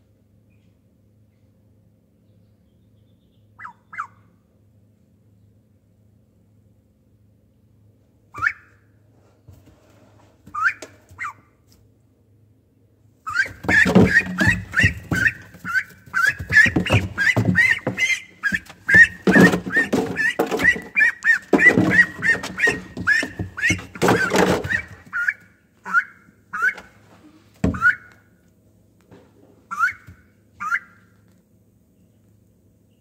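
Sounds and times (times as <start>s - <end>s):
duckling peeping: 2.9s - 4.2s, 10.6s - 11.4s, 13.3s - 27.0s, 27.6s - 28.2s, 29.7s - 31.2s
scrambling thumps: 13.3s - 25.2s.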